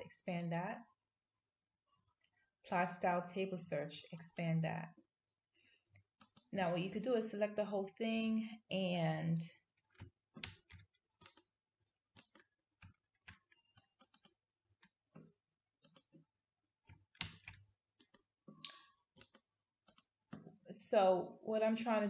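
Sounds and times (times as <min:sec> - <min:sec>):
computer mouse clicks: 0:05.9 - 0:06.5, 0:09.9 - 0:11.5, 0:12.2 - 0:14.9, 0:15.8 - 0:16.2, 0:16.9 - 0:20.4.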